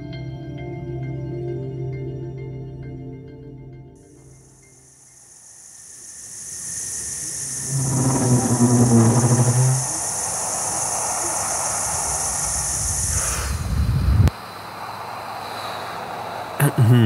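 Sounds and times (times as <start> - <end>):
high insect-like chirring: 4.1 - 16.6
low humming drone: 6.2 - 13.7.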